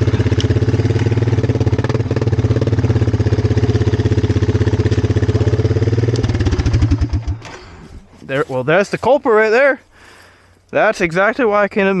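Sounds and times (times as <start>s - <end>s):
four-wheeler engine idling: 0.0s - 8.0s.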